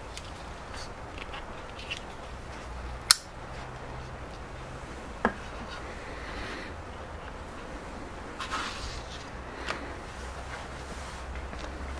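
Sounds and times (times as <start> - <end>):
steady low hiss: 0.0 - 11.9
knife blade snapping shut: 3.1 - 3.3.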